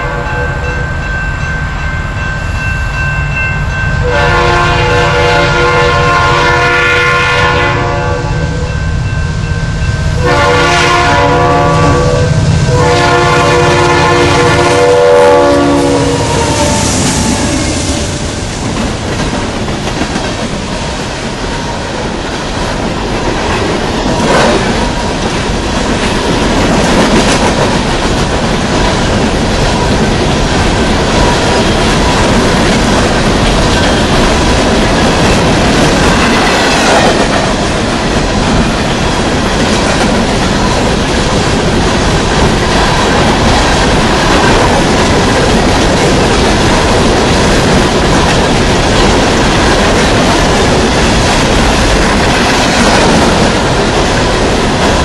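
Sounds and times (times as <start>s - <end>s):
diesel locomotives passing: 0.0s - 55.0s
freight cars rumbling past: 15.6s - 20.6s.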